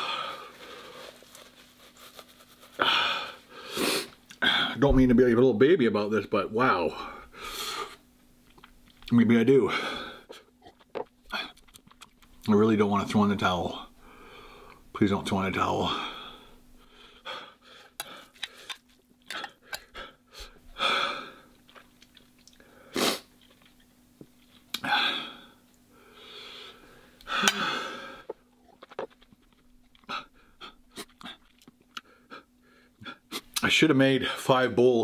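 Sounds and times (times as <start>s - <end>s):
man chewing and slurping noodles: 10.4s - 12.4s, 17.8s - 20.6s, 21.4s - 24.9s, 28.2s - 32.5s.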